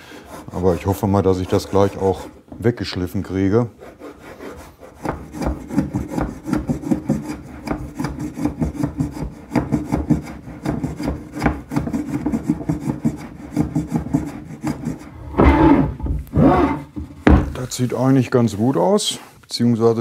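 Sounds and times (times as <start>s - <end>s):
sandpaper rubbing on wood: 0.2s - 2.4s, 3.6s - 16.9s
board scraping and knocking: 4.9s - 17.9s.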